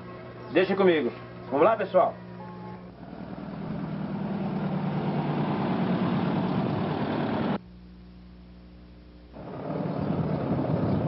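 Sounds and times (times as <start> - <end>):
van engine running: 2.3 - 7.6, 9.4 - 11.0
quiet steady hum: 7.6 - 10.9.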